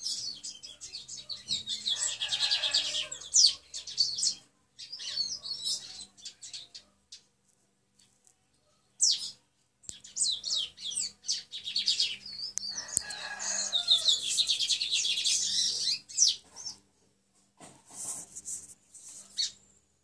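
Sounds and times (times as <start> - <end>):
songbird singing trills: 0.0 - 7.3, 9.0 - 16.8.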